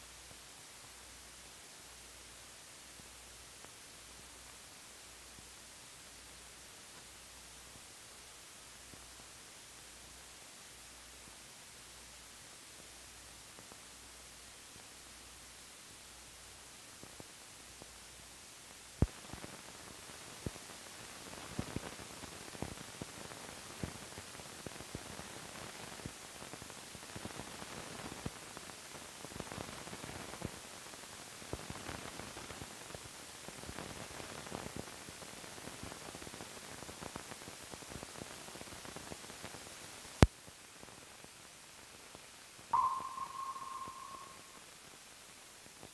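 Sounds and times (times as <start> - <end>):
film soundtrack hiss and crackle: 0.0 - 45.9.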